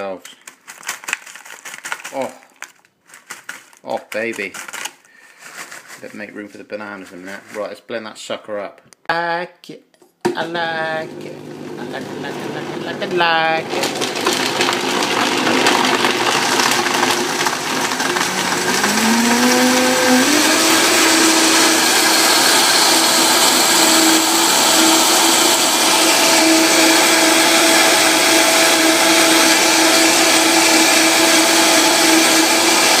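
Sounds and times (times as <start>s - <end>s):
blender running: 10.3s - 33.0s.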